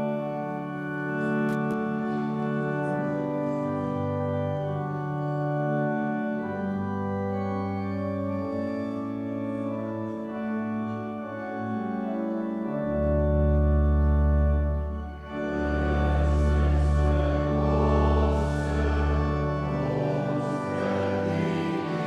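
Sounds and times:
organ playing slow chords: 0:00.0 - 0:22.0
deep organ bass note: 0:13.3 - 0:22.0.

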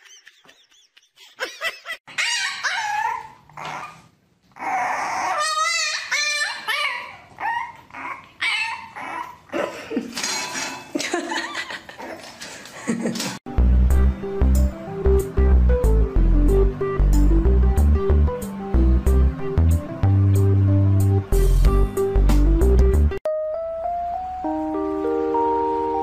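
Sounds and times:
pet animal crying: 0:02.1 - 0:04.0, 0:04.6 - 0:09.5.

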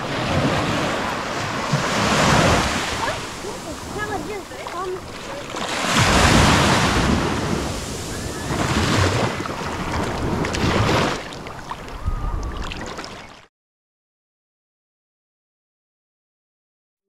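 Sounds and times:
wind rumbling on microphone: 0:00.0 - 0:13.3
small waves washing on sand: 0:00.0 - 0:13.4.

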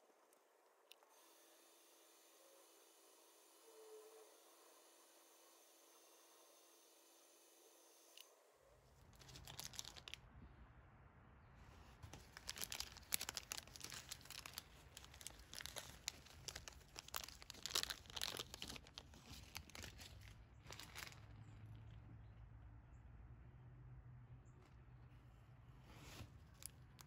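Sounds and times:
plastic bag crinkling: 0:09.0 - 0:10.2, 0:12.0 - 0:21.4.

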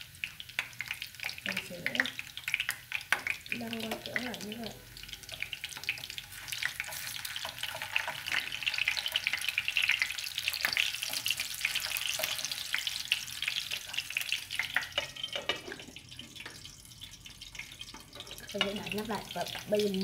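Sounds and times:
sausages sizzling in oil: 0:00.0 - 0:20.0.

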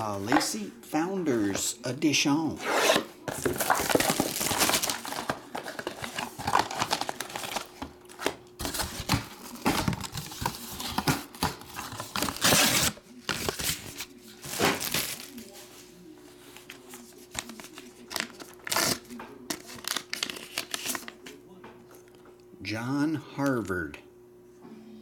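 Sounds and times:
plastic wrap crinkling: 0:03.3 - 0:15.4.

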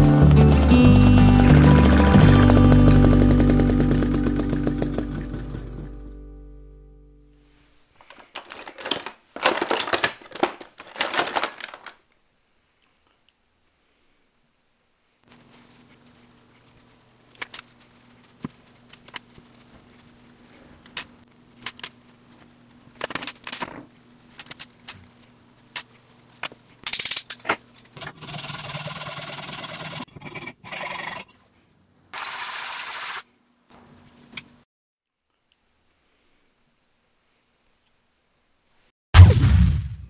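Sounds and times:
metal parts clinking: 0:08.0 - 0:11.9, 0:26.8 - 0:28.0.

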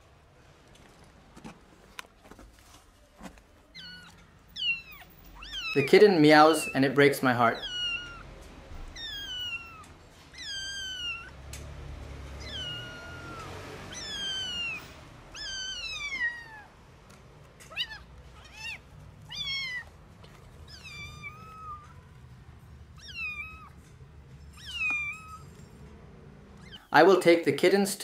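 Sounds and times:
kitten meowing: 0:03.7 - 0:06.8, 0:07.5 - 0:11.4, 0:12.4 - 0:16.8, 0:17.6 - 0:22.2, 0:22.9 - 0:23.8, 0:24.5 - 0:25.5, 0:26.6 - 0:26.9.

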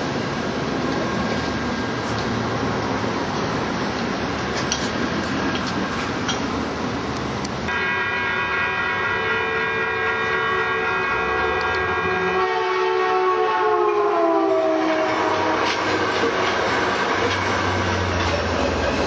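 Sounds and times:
train horn chord: 0:07.7 - 0:17.6.

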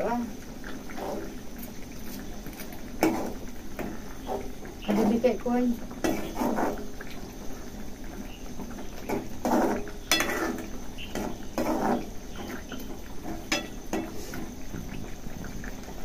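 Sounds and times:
metal spoon scraping steel pan: 0:06.0 - 0:06.8, 0:09.4 - 0:12.1.

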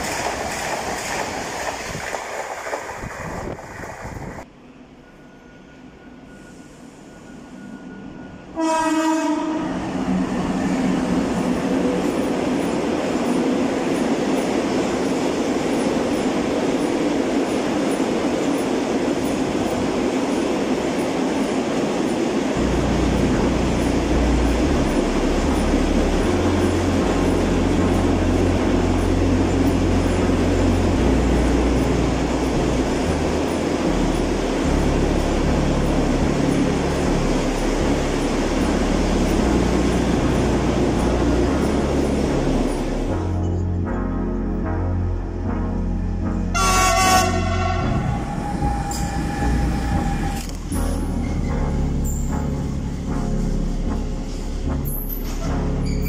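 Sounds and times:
freight train passing: 0:00.0 - 0:56.0
train horn blast: 0:08.5 - 0:09.8, 0:46.3 - 0:50.6.

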